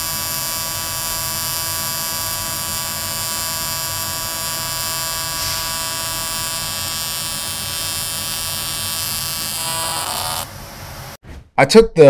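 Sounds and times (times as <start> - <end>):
welding arc buzzing: 0.0 - 11.2.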